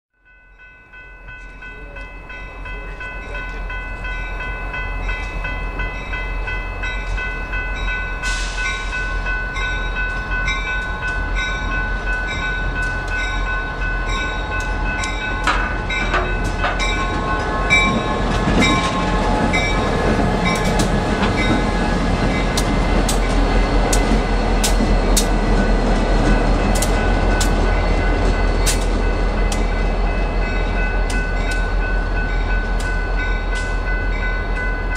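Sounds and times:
railroad crossing bells ringing: 0.2s - 34.9s
diesel locomotive engine: 0.3s - 34.9s
train wheels clicking over rails: 14.6s - 29.9s.

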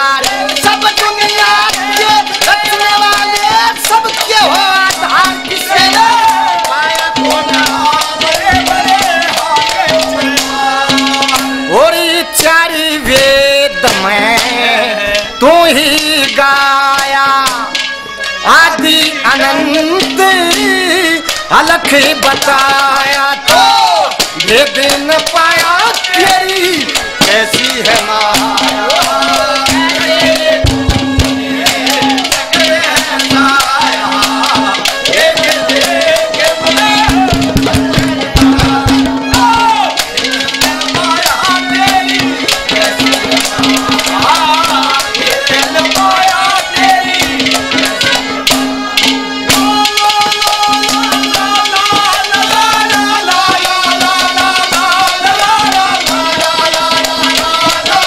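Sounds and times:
wavering folk melody instrument: 0.0s - 58.0s
fast hand drum strokes: 0.2s - 11.8s, 21.8s - 58.0s.

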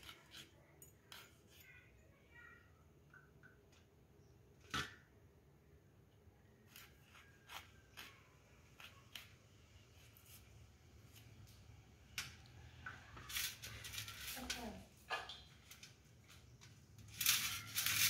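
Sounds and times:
blade cutting and scraping fruit: 0.0s - 1.7s, 6.6s - 11.3s.

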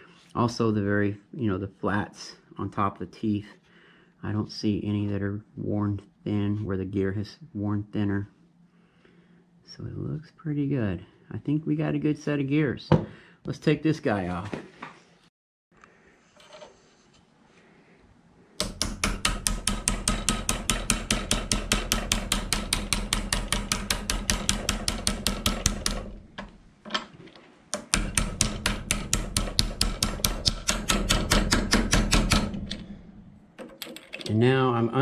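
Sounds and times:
hammer tapping on metal: 18.6s - 26.6s, 27.8s - 32.9s.

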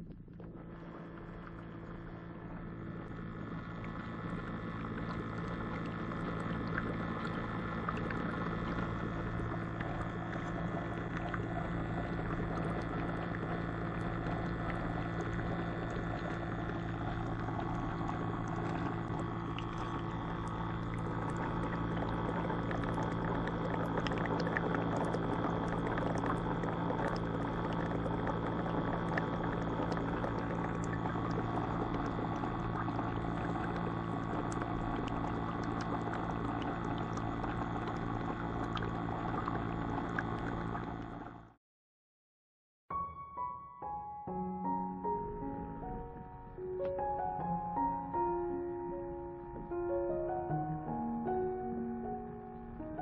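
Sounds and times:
steady low hum: 0.0s - 41.6s
water bubbling and churning: 0.0s - 41.6s.

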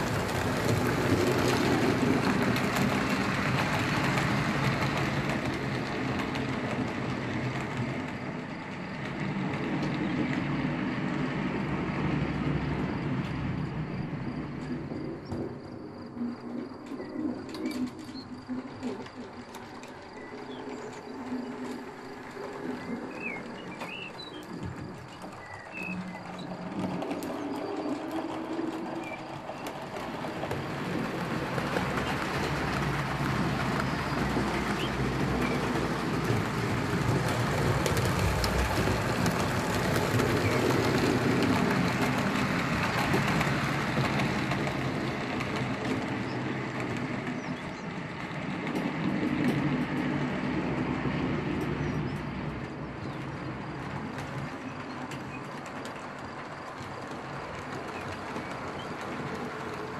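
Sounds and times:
model train rumbling and rattling: 0.0s - 59.9s.

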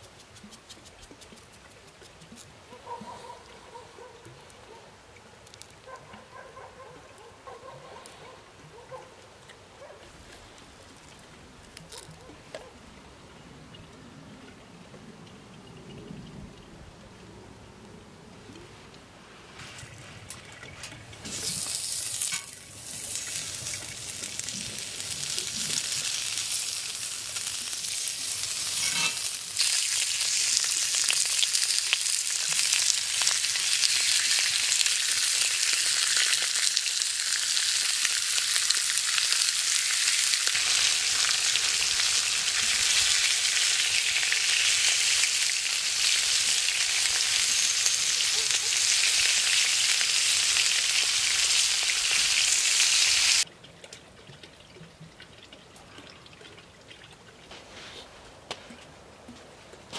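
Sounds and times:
chicken sizzling on grill pan: 21.4s - 53.4s.

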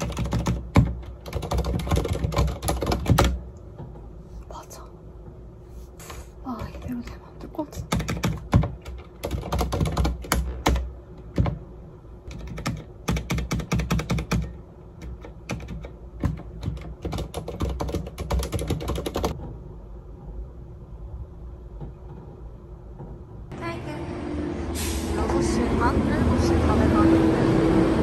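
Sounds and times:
typing on computer keyboard: 0.0s - 3.4s, 7.8s - 11.6s, 12.3s - 19.4s.

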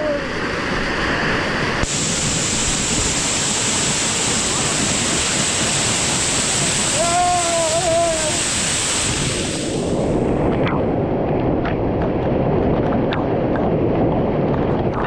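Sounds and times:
waterfall rushing: 0.0s - 10.4s.

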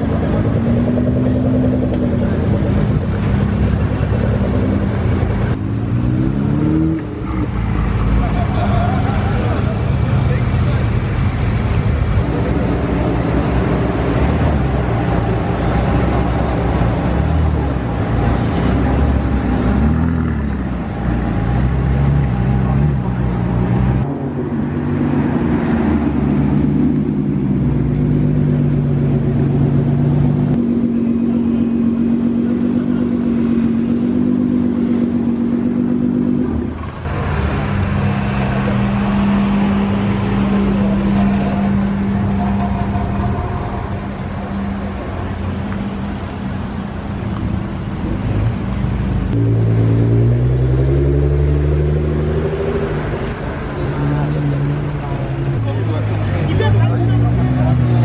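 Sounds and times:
sports car engines revving: 0.0s - 58.0s.

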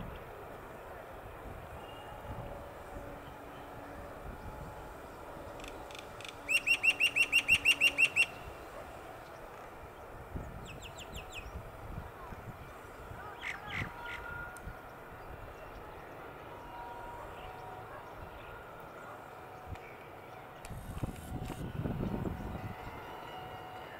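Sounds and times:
distant diesel train rumble: 0.0s - 23.9s
bird calling sharp notes: 5.5s - 8.5s.

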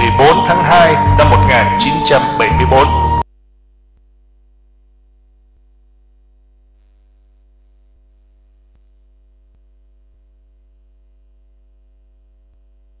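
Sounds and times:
electrical mains hum: 3.2s - 13.0s.

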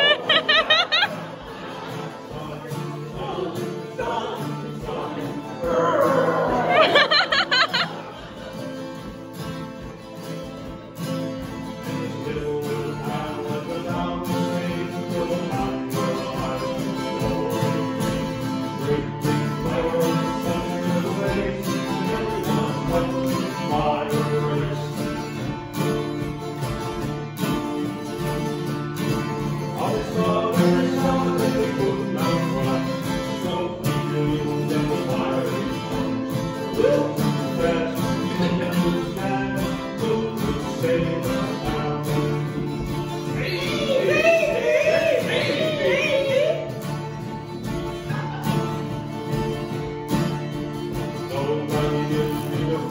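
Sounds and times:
acoustic guitars strummed: 0.0s - 52.9s.

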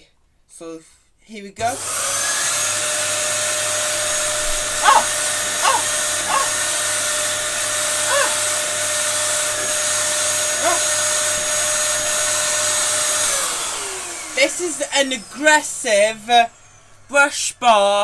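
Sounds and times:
vacuum cleaner hum and whine: 1.6s - 18.0s
short pitched cries: 4.8s - 6.5s, 8.1s - 8.4s.

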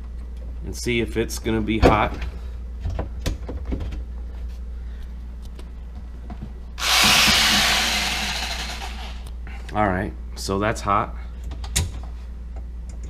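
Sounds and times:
corded power saw running: 6.8s - 9.2s.

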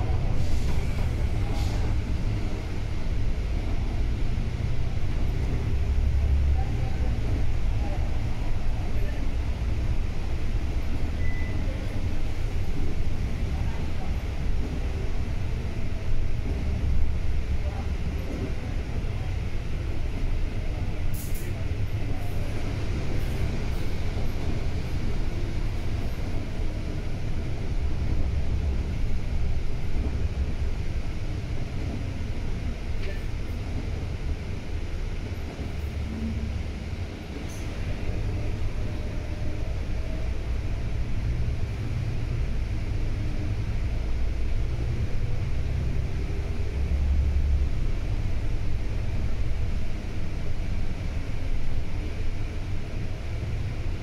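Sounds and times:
bus engine and road rumble: 0.0s - 54.0s.

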